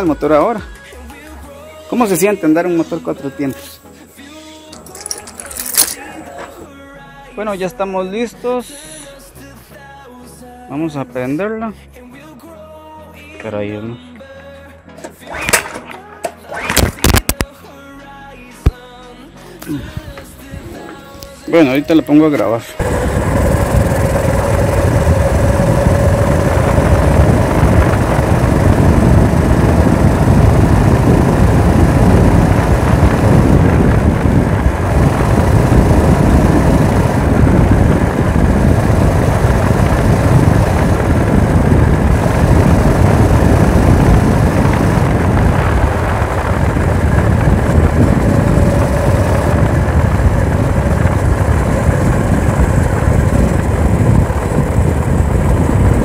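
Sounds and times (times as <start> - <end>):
wind rushing over microphone: 19.7 - 56.0
motorized bicycle engine running: 22.8 - 56.0.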